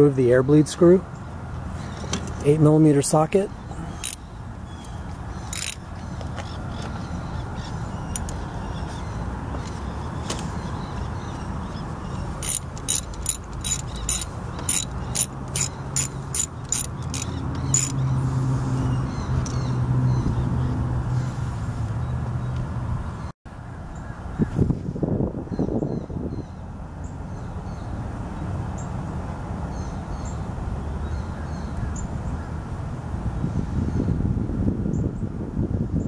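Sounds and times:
ratchet clicking: 4.0s - 4.2s, 5.5s - 5.8s, 12.4s - 18.0s.

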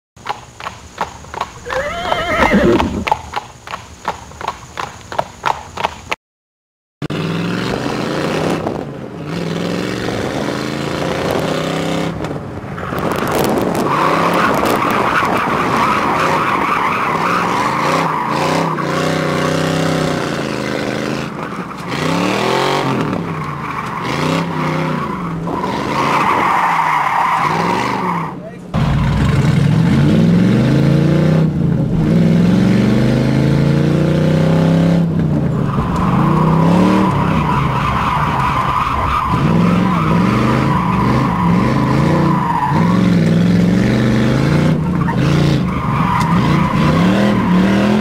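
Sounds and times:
galloping hoofbeats: 0.2s - 6.1s
tyres squealing: 1.4s - 3.4s
car engine revving: 7.0s - 48.0s.

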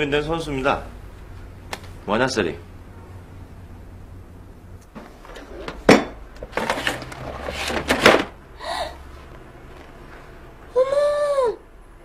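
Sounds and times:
cosmetics bag clattering and rustling: 5.0s - 8.3s.

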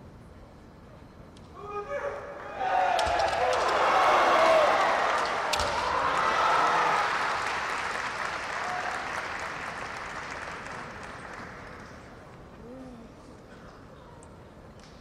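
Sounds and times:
audience applauding: 3.3s - 12.3s.

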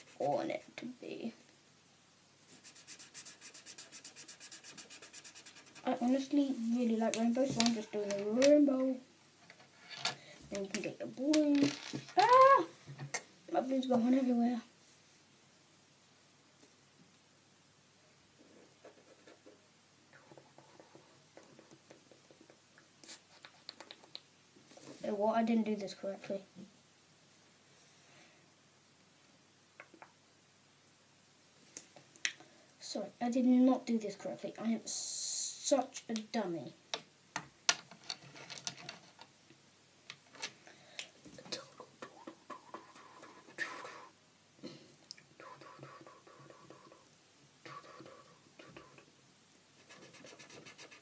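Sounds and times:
felt-tip pen scratching on paper: 2.6s - 5.9s, 45.4s - 47.1s, 49.8s - 51.0s.

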